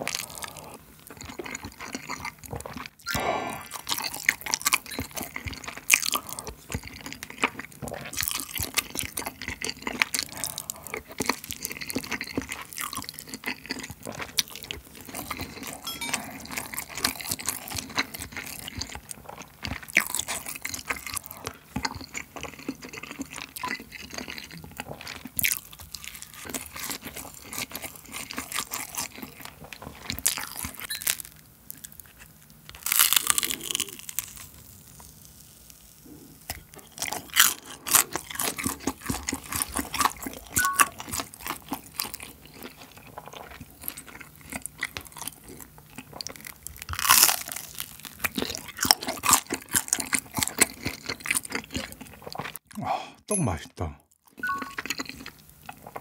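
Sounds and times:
chewing: 0.0 - 52.8, 54.2 - 56.0
crunchy bites: 32.7 - 35.3, 36.4 - 52.6.

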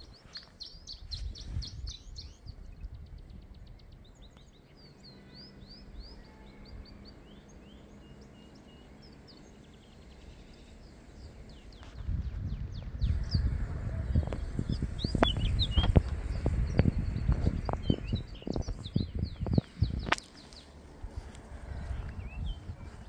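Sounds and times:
footsteps on a path: 0.0 - 1.8, 14.2 - 23.0
songbirds singing: 0.0 - 23.0
steady low rumble: 0.0 - 23.0.

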